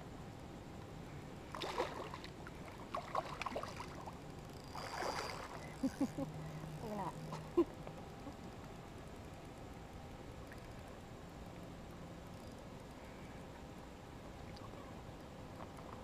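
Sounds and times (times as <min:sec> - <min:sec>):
water splashing and sloshing: 0:01.5 - 0:05.8.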